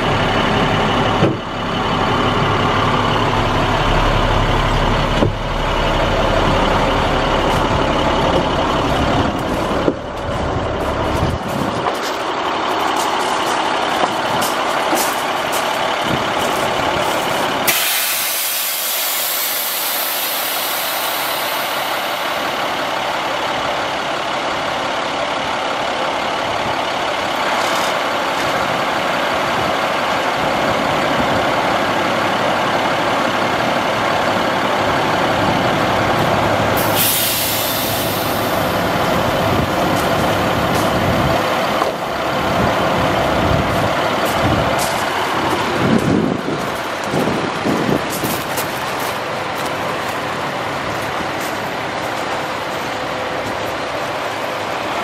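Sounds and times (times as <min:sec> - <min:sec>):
diesel truck engine running: 0:00.0 - 0:55.0
loud air hiss: 0:17.6 - 0:22.8, 0:36.8 - 0:39.0.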